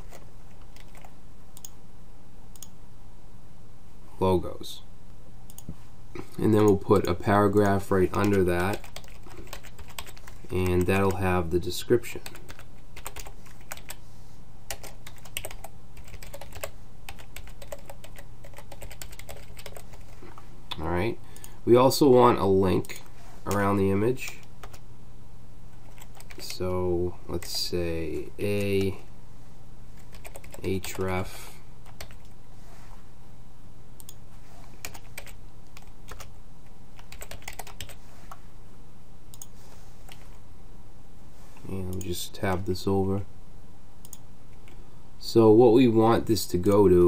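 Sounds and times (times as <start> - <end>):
keyboard typing clicks: 0.0 - 1.8, 37.0 - 38.0, 39.3 - 39.5
typing on keyboard: 0.0 - 1.8, 7.7 - 11.2, 12.2 - 14.0, 14.7 - 20.1, 24.4 - 24.8, 25.9 - 26.6, 30.0 - 31.0, 31.9 - 32.3, 34.8 - 36.3, 37.0 - 38.0
steady low hum: 0.0 - 47.0.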